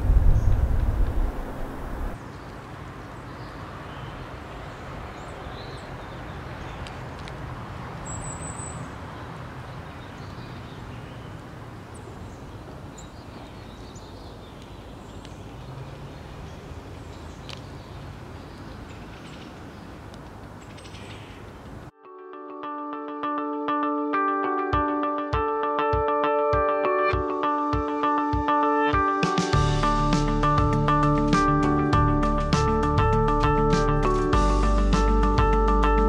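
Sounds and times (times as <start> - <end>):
outdoor rumble and hiss: 0.0 - 21.9
songbirds chirping: 0.1 - 21.9.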